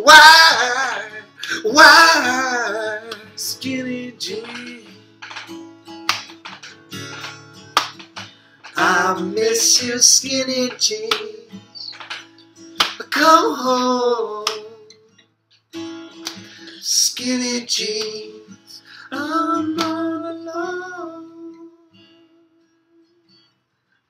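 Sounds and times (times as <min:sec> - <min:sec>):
men singing: 0:00.0 - 0:04.9, 0:08.8 - 0:11.4, 0:19.1 - 0:21.4
strummed acoustic guitar: 0:00.0 - 0:24.0.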